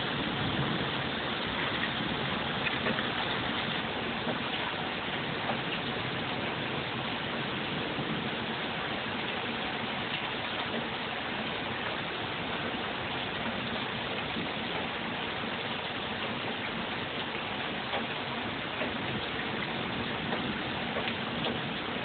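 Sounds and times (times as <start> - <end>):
rain falling steadily: 0.0 - 22.0.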